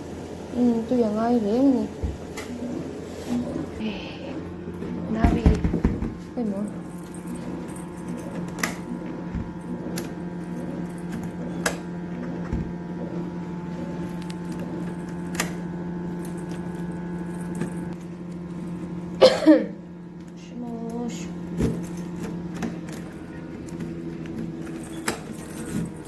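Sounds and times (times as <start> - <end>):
steady hum: 0.0 - 26.0
keys jangling: 6.6 - 9.0, 16.1 - 18.0, 21.8 - 26.0.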